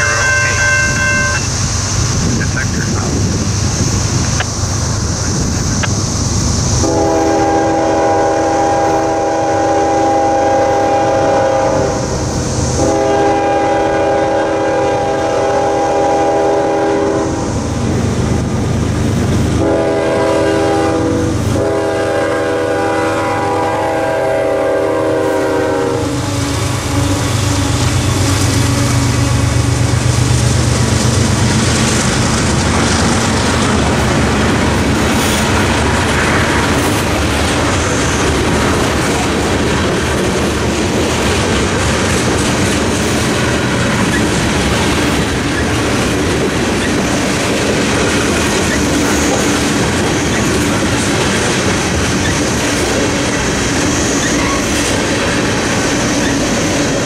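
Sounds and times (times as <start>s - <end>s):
train horn blasts: 0.0s - 1.5s, 6.8s - 12.1s, 12.8s - 17.5s, 19.6s - 29.8s
crossing bells ringing: 0.0s - 1.6s
train wheels clicking over rails: 1.3s - 57.0s.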